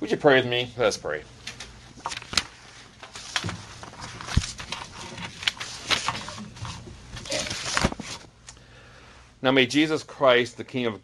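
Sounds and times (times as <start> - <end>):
paper rustling: 1.5 - 8.3.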